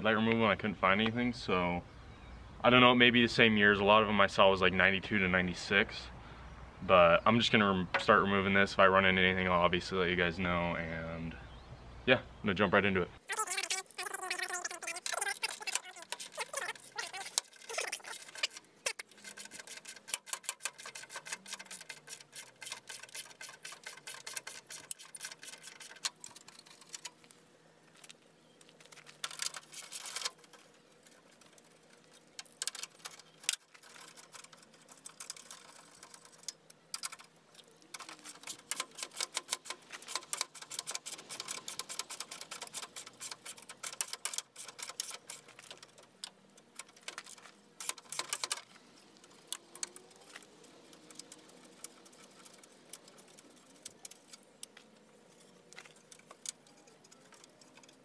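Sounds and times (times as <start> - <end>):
rapid ratchet and tool clicks: 13.3 - 27.2, 29.0 - 58.0.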